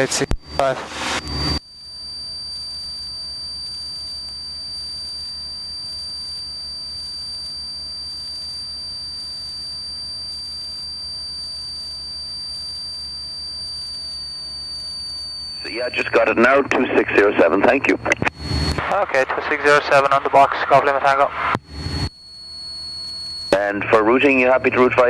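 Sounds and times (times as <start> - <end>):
high-pitched electronic tone: 0.0 - 1.6, 15.5 - 20.6.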